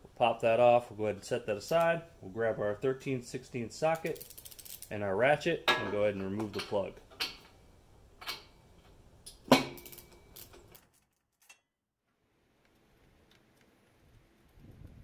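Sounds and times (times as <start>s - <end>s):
ratchet metal clicks: 3.9s - 4.9s.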